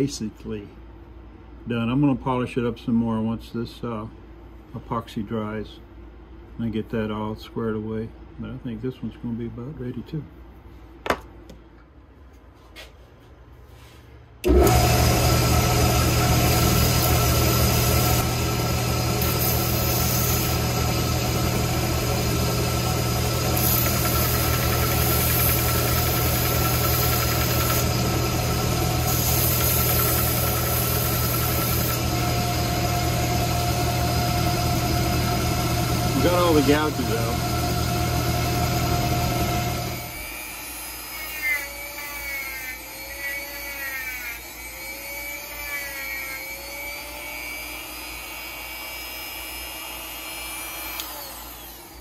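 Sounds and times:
belt sander running: 14.4s - 52.0s.

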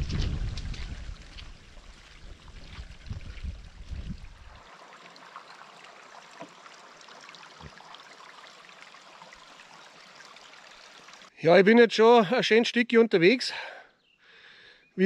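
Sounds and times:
wind buffeting microphone: 0.0s - 4.6s
stream of running water: 0.0s - 11.4s.

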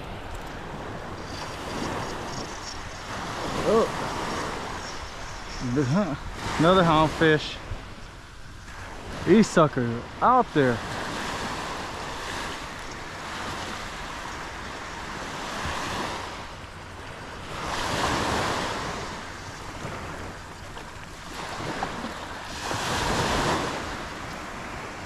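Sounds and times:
wind on microphone: 0.0s - 9.3s
surf waves breaking on beach: 0.0s - 25.0s.

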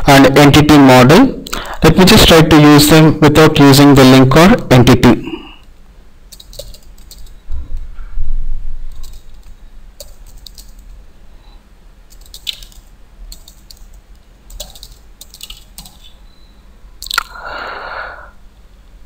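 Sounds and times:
computer keyboard typing: 6.3s - 7.4s, 8.9s - 11.0s, 12.1s - 16.2s.

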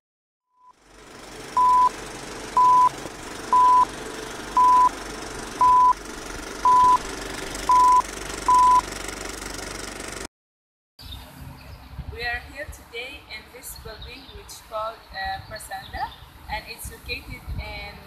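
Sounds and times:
high short beeps: 1.6s - 1.9s, 2.6s - 2.9s, 3.6s - 3.9s, 4.6s - 4.9s, 5.6s - 6.0s, 6.7s - 7.0s, 7.7s - 8.8s.

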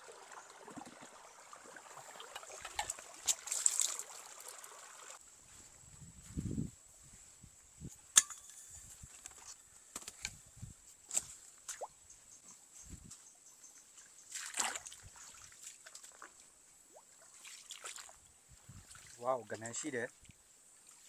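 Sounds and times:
water splash: 0.0s - 5.2s, 14.3s - 16.3s
footsteps in mud and water: 2.0s - 4.2s, 14.0s - 16.6s, 17.3s - 18.2s.

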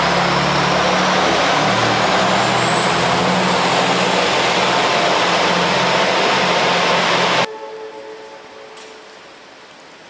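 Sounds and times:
diesel railcar engine running: 0.0s - 7.5s
wheel and rail noise: 0.0s - 10.0s.

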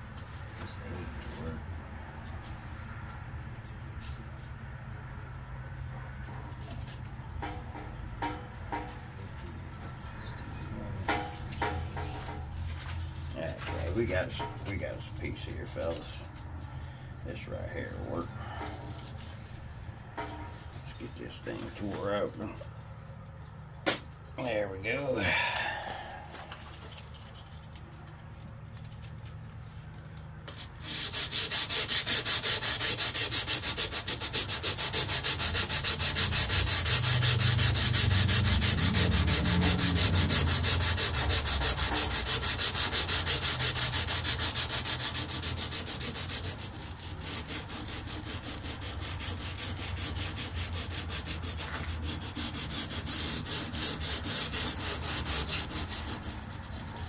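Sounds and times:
sandpaper rubbing on steel blade: 11.1s - 16.4s, 30.5s - 57.0s.

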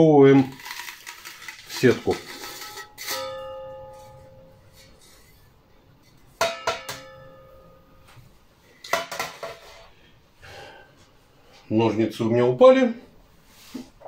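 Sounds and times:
metal tube clanking on steel tray: 6.4s - 7.6s.

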